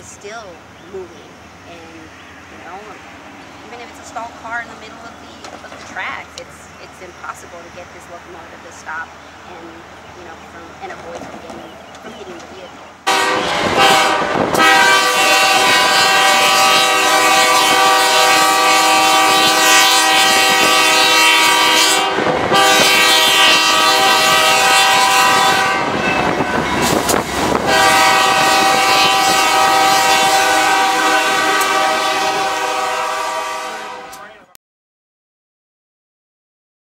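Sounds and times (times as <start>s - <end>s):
rail clatter: 2.7s - 9.0s, 9.7s - 18.0s, 22.2s - 30.4s
locomotive air horn blasts: 13.0s - 34.4s.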